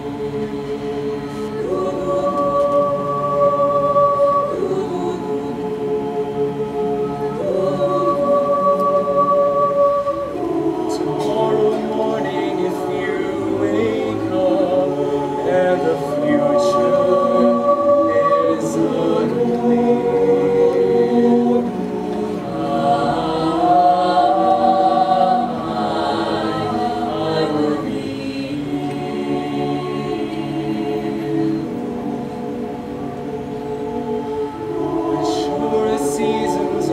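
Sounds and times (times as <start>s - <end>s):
choir singing: 0.0s - 36.9s.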